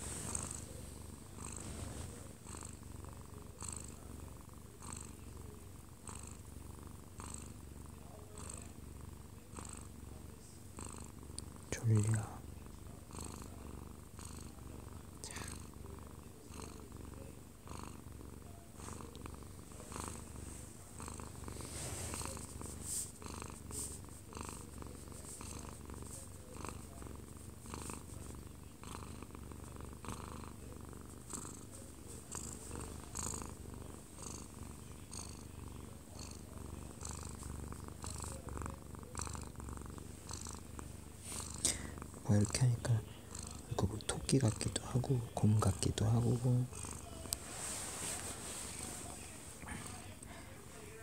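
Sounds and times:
soft rustling: 0:00.0 - 0:02.8, 0:18.8 - 0:28.3, 0:45.9 - 0:51.0
cat purring: 0:00.0 - 0:51.0.

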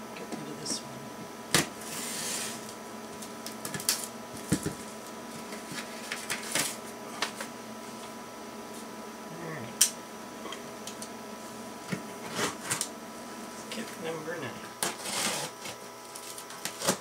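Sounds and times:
bubble wrap crinkling: 0:15.5 - 0:17.0.

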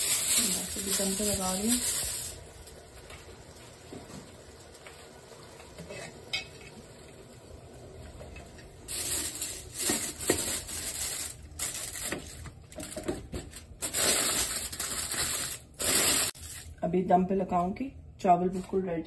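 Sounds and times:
aluminium foil crinkling: 0:00.0 - 0:02.9, 0:08.9 - 0:16.8.

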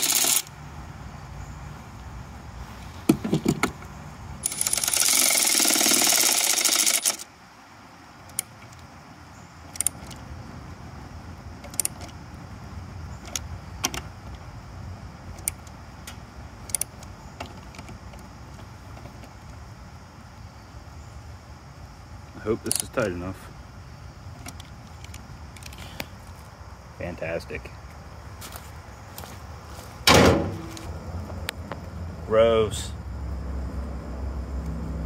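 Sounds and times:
ratchet wrench clicking: 0:00.0 - 0:00.5, 0:04.4 - 0:07.3, 0:22.7 - 0:22.9
sharp clicks and knocks: 0:03.1 - 0:07.2, 0:13.2 - 0:14.4, 0:15.4 - 0:19.6.

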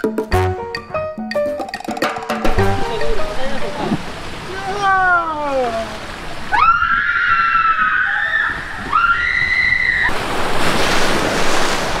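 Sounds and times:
water splashing: 0:01.7 - 0:12.0
riders screaming: 0:06.5 - 0:10.2.

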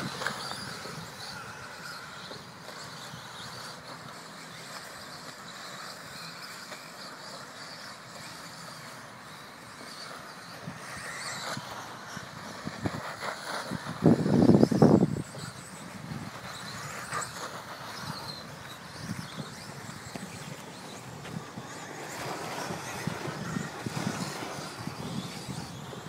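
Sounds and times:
rc buggy motors and tyres on dirt: 0:00.0 - 0:26.0
loud rough rushing noise: 0:10.6 - 0:26.0.

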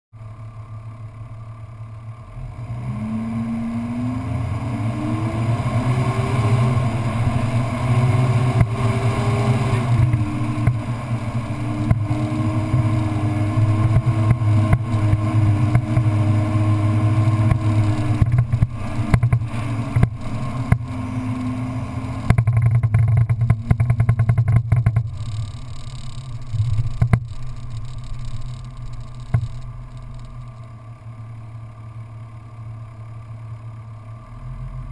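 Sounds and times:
off-road vehicle engine: 0:00.1 - 0:34.9
vehicle knocks and rattles: 0:17.3 - 0:20.9, 0:22.2 - 0:30.6.

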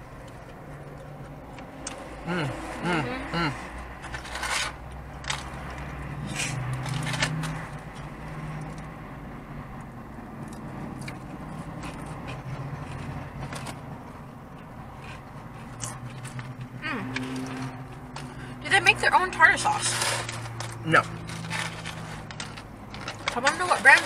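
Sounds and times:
food packaging crinkling: 0:19.8 - 0:24.0.

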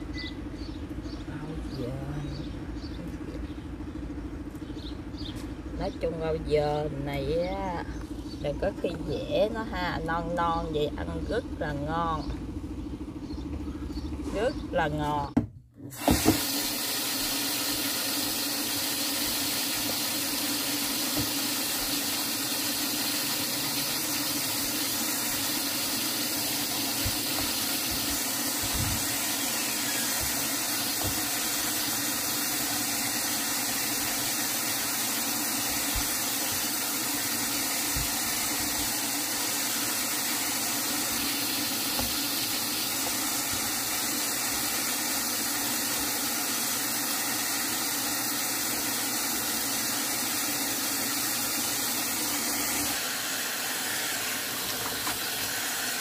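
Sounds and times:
tap water running into basin: 0:15.9 - 0:56.0.

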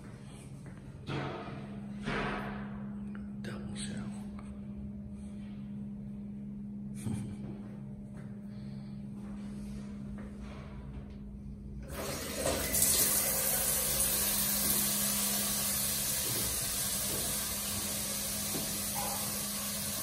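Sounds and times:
shower water splashing: 0:11.9 - 0:20.0.

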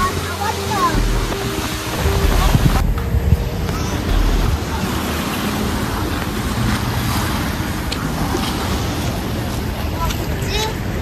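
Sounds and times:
low rumble: 0:00.0 - 0:07.6
wind buffeting microphone: 0:00.0 - 0:11.0.

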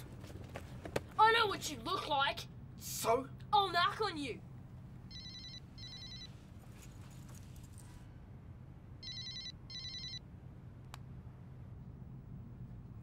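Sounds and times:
low steady hum: 0:00.0 - 0:13.0
mobile phone ringing: 0:05.1 - 0:06.4, 0:09.0 - 0:10.2.

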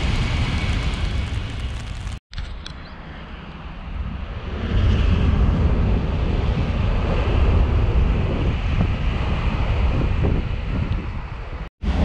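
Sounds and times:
high-speed train passing: 0:00.0 - 0:02.2
wind buffeting microphone: 0:03.2 - 0:12.0.

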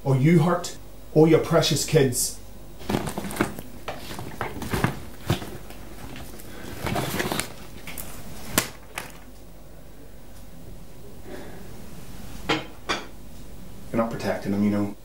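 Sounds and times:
handbag rustling with clicks: 0:02.8 - 0:09.3.

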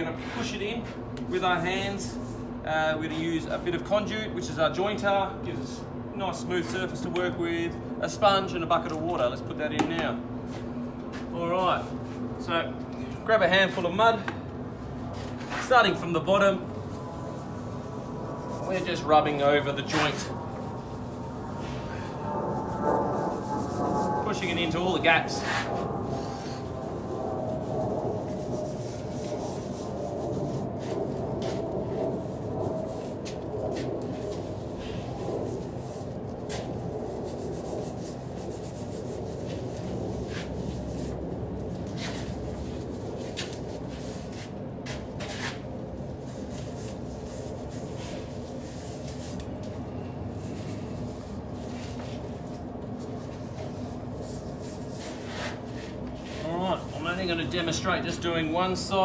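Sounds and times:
low background rumble: 0:07.7 - 0:55.2
mortar scraping strokes: 0:15.1 - 0:49.6, 0:50.3 - 0:59.0.

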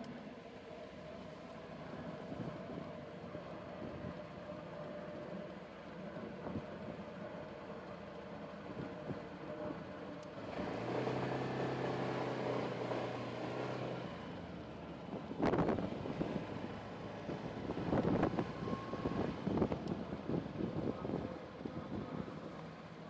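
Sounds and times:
scooter engine droning: 0:00.0 - 0:23.0
wind on microphone: 0:15.1 - 0:16.6, 0:17.2 - 0:22.5.

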